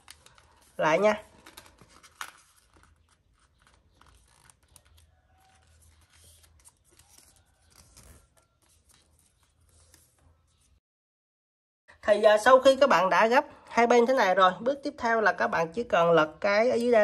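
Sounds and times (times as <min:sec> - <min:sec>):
soft clicks of paper folding: 0:00.0 - 0:00.7
paper rustling and crinkling: 0:00.0 - 0:10.8.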